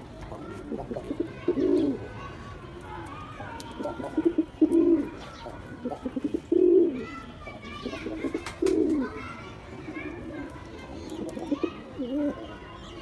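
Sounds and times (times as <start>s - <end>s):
pigeon cooing: 3.8s - 5.2s.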